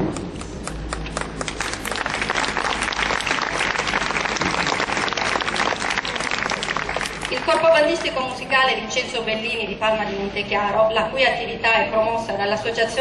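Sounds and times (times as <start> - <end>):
audience applauding: 0.7 - 8.2.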